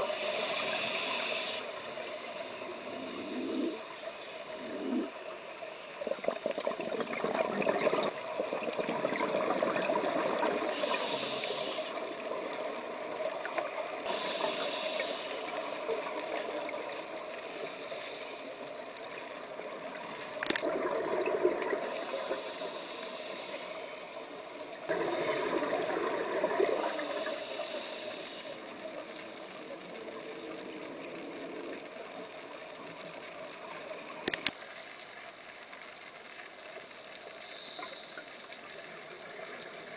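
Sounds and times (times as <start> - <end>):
regulator hissing inhalations: 0.0 - 2.1, 10.6 - 19.4, 21.8 - 25.4, 26.8 - 28.7, 37.4 - 38.2.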